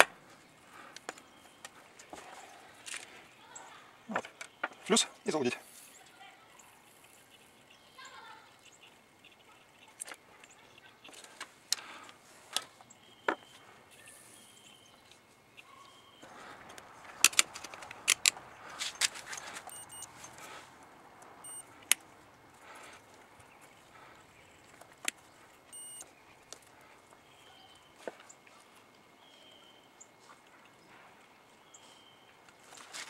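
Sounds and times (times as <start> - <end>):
small tools clicking and tapping: 16.6 - 20.4, 24.6 - 27.2
loud metallic clicks: 17.2 - 19.4.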